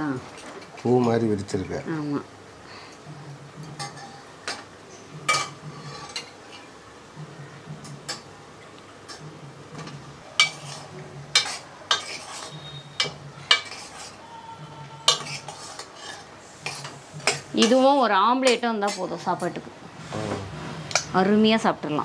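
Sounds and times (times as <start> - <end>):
spoon stirring thick food in pot: 9.1 - 14.2, 15.0 - 17.8
metal spoon clinking on pot: 10.4 - 14.2, 15.1 - 17.8.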